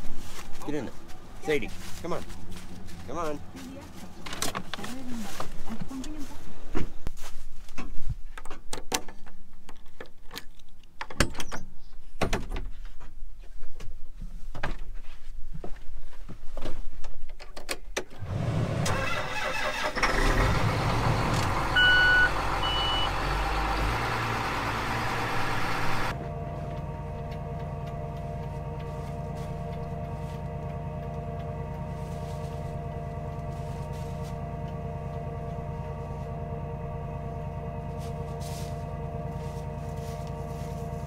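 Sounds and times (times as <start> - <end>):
footsteps crunching on frozen stalks: 0.0 - 7.6, 28.0 - 30.8, 31.8 - 34.6, 37.9 - 41.0
tractor engine starting and running: 18.0 - 41.0
short warning beeps: 21.7 - 23.3
steady hum: 25.3 - 41.0.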